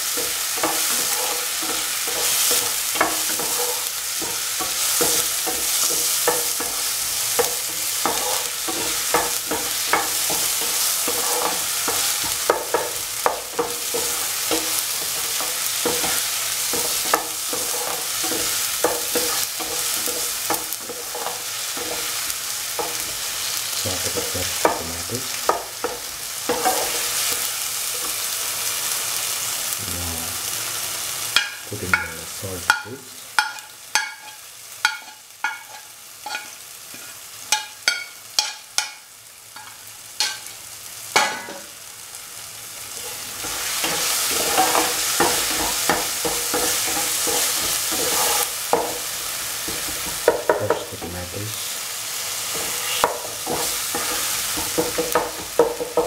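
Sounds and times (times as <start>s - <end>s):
spatula scraping and knocking pan: 0.0s - 28.3s, 31.3s - 39.0s, 39.6s - 40.5s, 42.9s - 51.2s, 52.4s - 56.0s
vegetables sizzling in oil: 0.0s - 56.0s.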